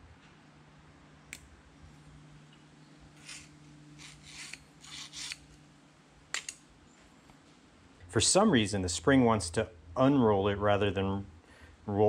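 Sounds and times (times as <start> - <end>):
spring rasping scrapes: 3.2 - 5.6
sharp click: 6.3 - 6.6.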